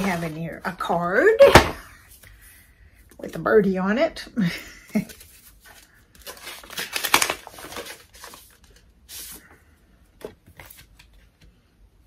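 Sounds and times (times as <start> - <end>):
paper rustling: 0.0 - 0.7, 5.0 - 9.6, 10.2 - 11.5.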